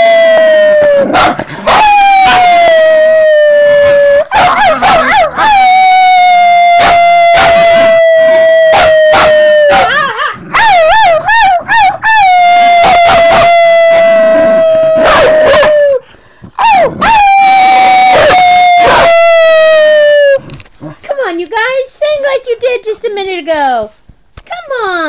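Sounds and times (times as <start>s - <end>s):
dog howling: 0.0s - 16.0s, 16.6s - 20.5s
dog yipping: 4.3s - 5.6s, 8.7s - 12.2s, 15.0s - 15.7s.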